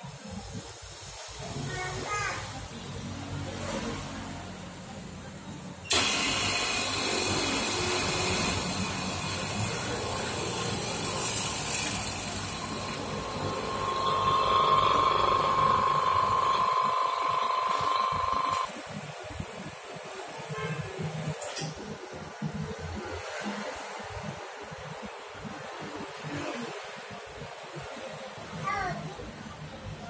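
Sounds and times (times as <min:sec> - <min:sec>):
vacuum pump hissing: 0:05.9 - 0:18.7
steady whine: 0:05.9 - 0:19.0.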